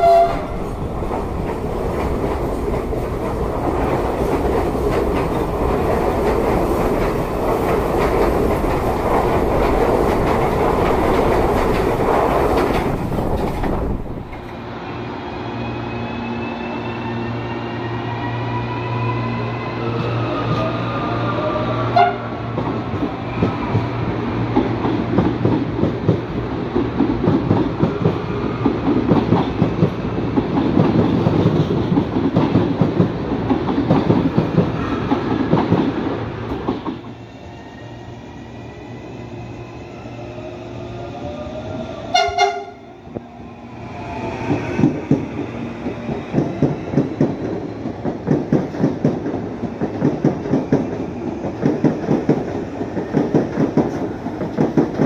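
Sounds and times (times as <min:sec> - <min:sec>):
train horn blast: 0:00.0 - 0:00.8, 0:20.3 - 0:22.5, 0:42.1 - 0:43.0
electric train whine: 0:00.0 - 0:55.0
train rumbling past: 0:00.0 - 0:55.0.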